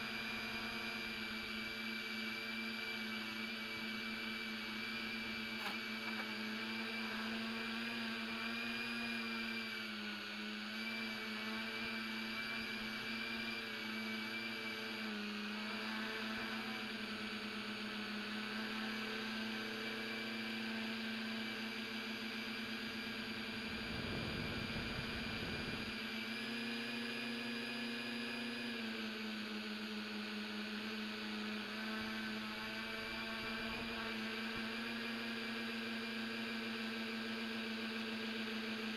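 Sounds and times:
drone motors whining: 0.0s - 37.6s
rough burst of noise: 23.6s - 25.9s.

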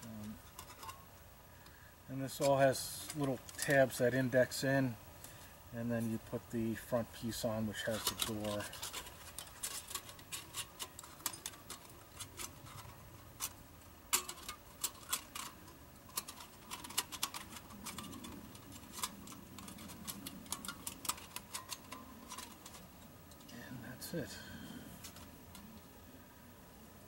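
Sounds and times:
metal panels clicking and tapping: 0.0s - 1.0s, 7.2s - 23.6s.

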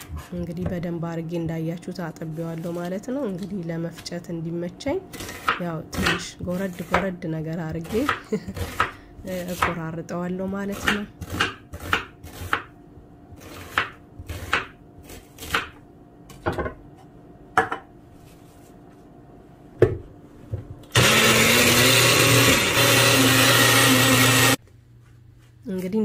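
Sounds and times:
knife chopping on stone countertop: 10.8s - 12.7s, 13.4s - 14.8s
small blender running: 20.9s - 24.6s.

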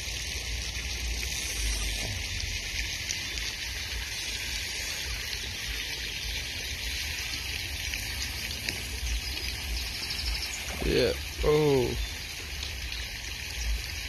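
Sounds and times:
even hiss: 0.0s - 13.7s.

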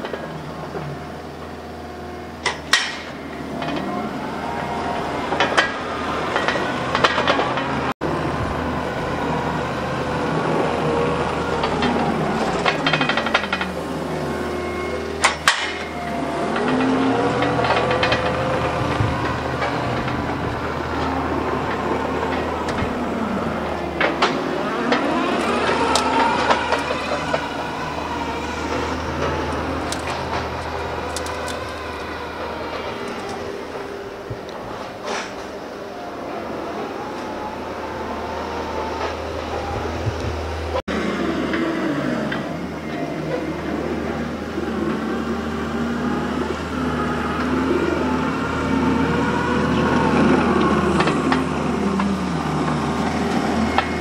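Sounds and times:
metal clanks and squeaks: 0.0s - 7.9s, 11.0s - 37.4s
loader engine and hydraulic whine: 0.0s - 54.0s.

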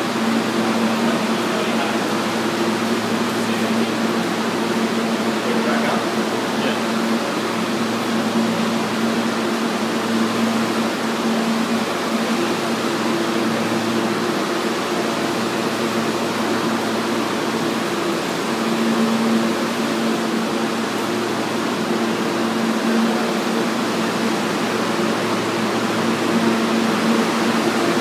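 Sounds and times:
constant mechanical hum: 0.0s - 28.0s.

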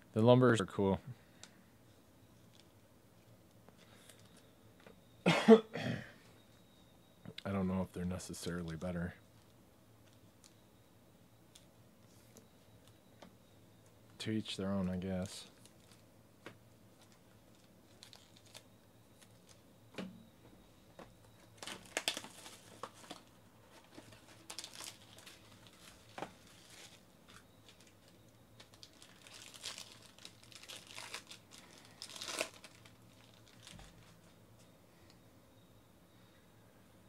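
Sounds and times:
foil wrapper crinkling and tearing: 17.0s - 19.6s, 21.4s - 34.3s.

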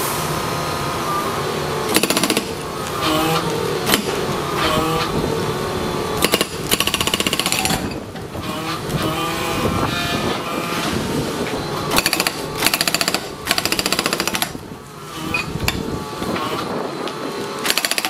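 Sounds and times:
hydraulics whining: 0.0s - 18.0s
hydraulic breaker hammering rock: 1.9s - 5.1s, 6.2s - 9.4s, 11.9s - 14.6s, 17.6s - 18.0s.

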